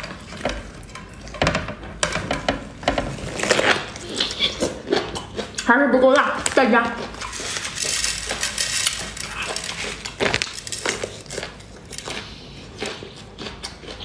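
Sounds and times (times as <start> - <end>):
wet biting and chewing: 3.1 - 14.0.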